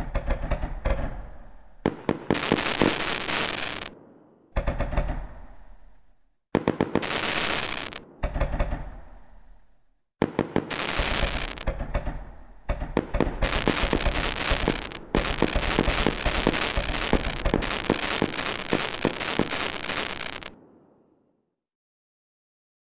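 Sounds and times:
fireworks exploding: 0.0s - 5.8s, 6.5s - 9.5s, 10.2s - 21.0s.

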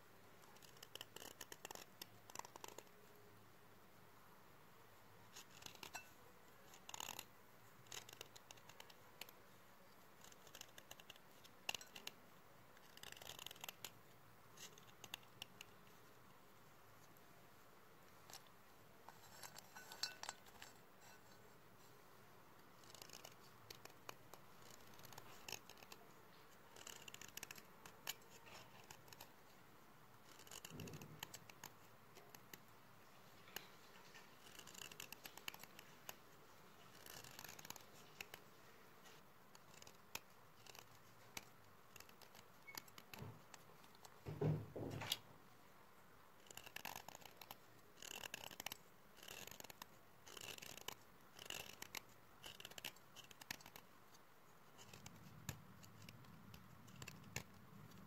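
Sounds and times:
chalk crumbling: 18.1s - 22.1s, 22.7s - 29.5s
knife scraping chalk: 19.1s - 22.0s, 33.5s - 36.1s, 36.8s - 44.0s, 46.4s - 53.8s.

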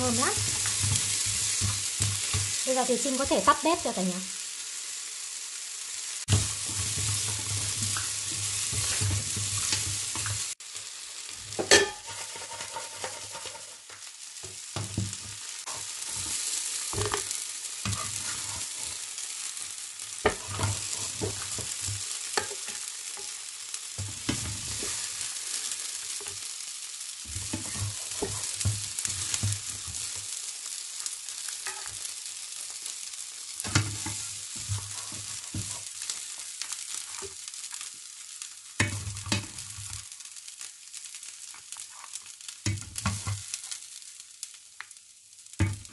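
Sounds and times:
utensils scraping and knocking pan: 0.0s - 2.5s, 6.3s - 10.4s, 11.6s - 14.0s, 14.8s - 19.0s, 20.2s - 23.3s, 27.3s - 30.2s, 33.6s - 35.9s
food sizzling in frying pan: 0.0s - 45.9s.

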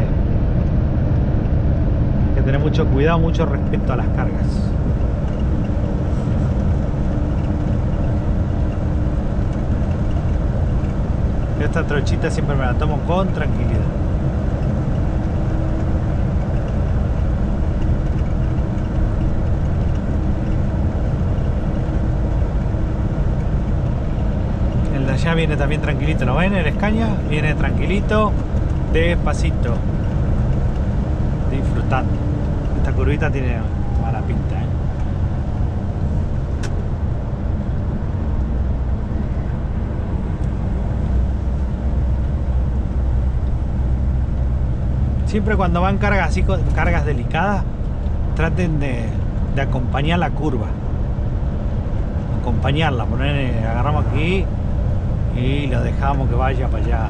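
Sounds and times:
road rumble: 0.0s - 57.0s
truck diesel engine running: 0.0s - 57.0s.

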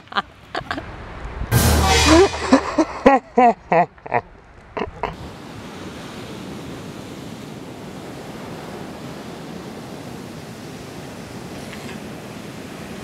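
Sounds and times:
ocean surf breaking: 5.1s - 13.0s.

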